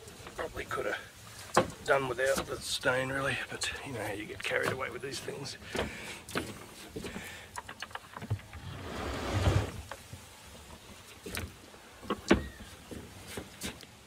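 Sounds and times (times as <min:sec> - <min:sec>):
wooden lid scraping: 0:07.8 - 0:10.0.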